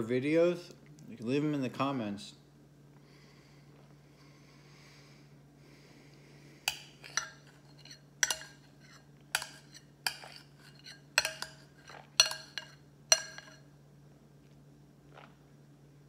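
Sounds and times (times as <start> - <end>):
utensil clinking against bowl: 6.7 - 13.6.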